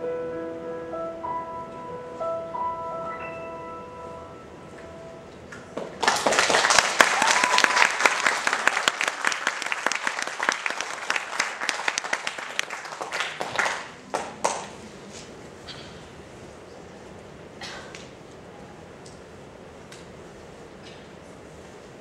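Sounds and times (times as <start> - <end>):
audience applauding: 5.8 - 14.8.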